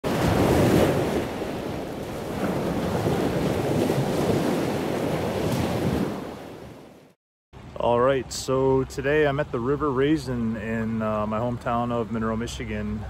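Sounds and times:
wind buffeting microphone: 0:00.0 - 0:06.8
rushing churning water: 0:00.0 - 0:09.7.

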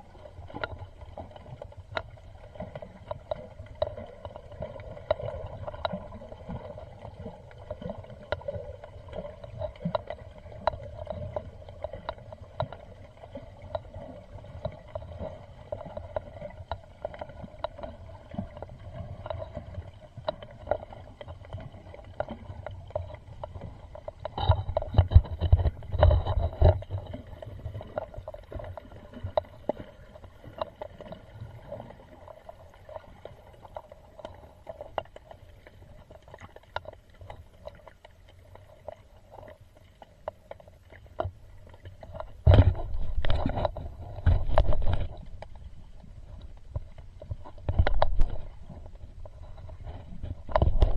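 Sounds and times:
underwater clicks and crackles: 0:00.0 - 0:50.9
underwater low rumble: 0:00.0 - 0:50.9
underwater knocks: 0:00.4 - 0:31.9, 0:41.2 - 0:50.9.

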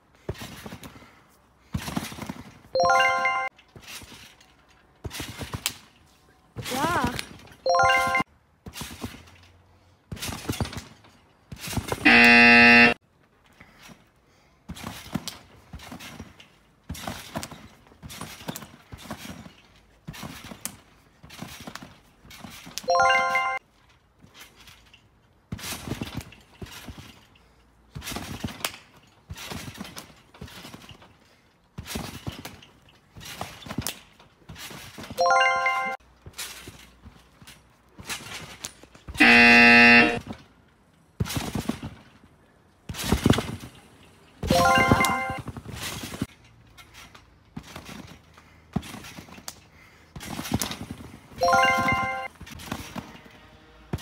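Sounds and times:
thumps of bouncing on trampoline: 0:00.1 - 0:02.8, 0:03.6 - 0:07.6, 0:08.6 - 0:23.0, 0:23.7 - 0:35.4, 0:36.2 - 0:54.0
short stepped chime: 0:02.8 - 0:03.5, 0:44.4 - 0:45.4, 0:51.4 - 0:52.3
loud buzzer tone: 0:12.0 - 0:13.0, 0:39.2 - 0:40.2.

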